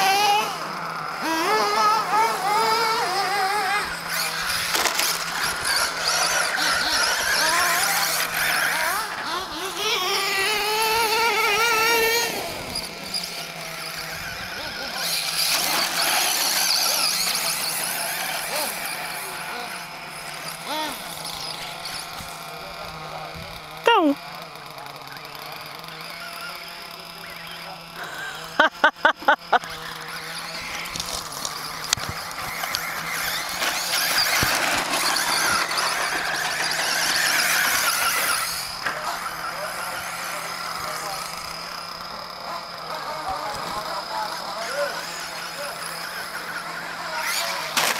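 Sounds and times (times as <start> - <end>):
electric motor whining: 0.0 - 47.9
tyres scrabbling on dirt: 29.8 - 39.2.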